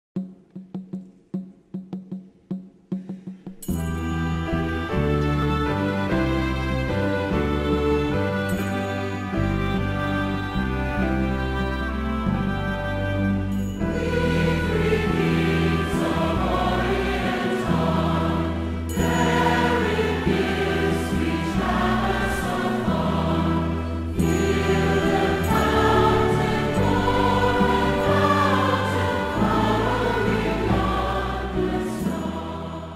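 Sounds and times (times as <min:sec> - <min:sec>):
choir singing: 0:13.8 - 0:32.9.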